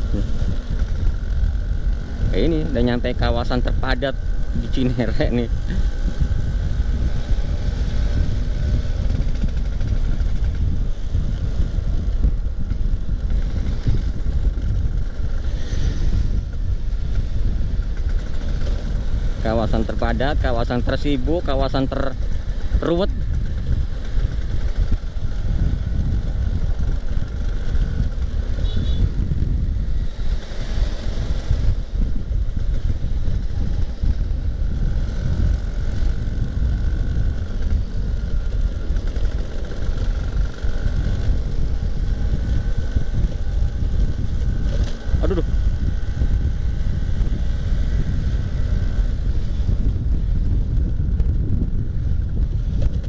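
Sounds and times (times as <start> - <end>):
scooter engine running: 0.0 - 53.0
wind rumble on microphone: 0.0 - 53.0.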